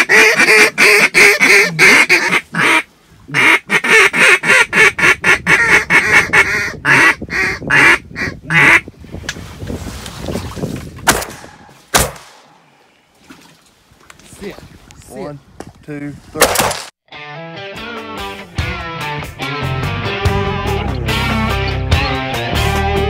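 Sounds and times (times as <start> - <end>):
shotgun shots: 11.1 - 12.5, 16.4 - 16.9.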